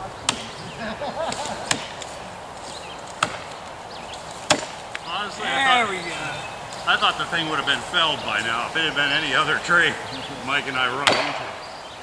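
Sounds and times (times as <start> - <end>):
axe chopping into tree trunk: 0.3 - 0.6, 1.3 - 2.1, 3.1 - 3.6, 4.4 - 5.0, 11.0 - 11.6.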